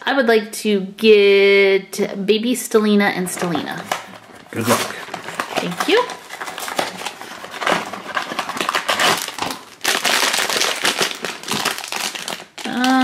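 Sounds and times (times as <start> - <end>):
foil bag crinkling: 3.3 - 13.0
cardboard box being opened: 4.1 - 9.6.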